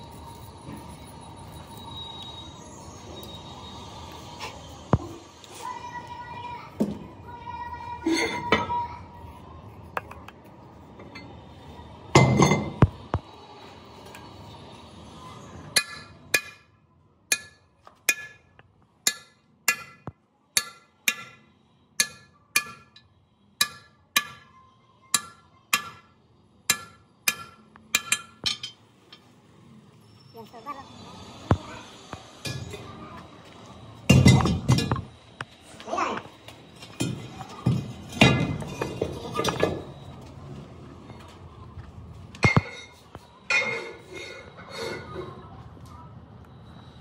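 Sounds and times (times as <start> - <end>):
hammer blows ringing on metal: 15.8 - 23.0, 23.6 - 24.6, 25.2 - 26.1, 26.7 - 28.7.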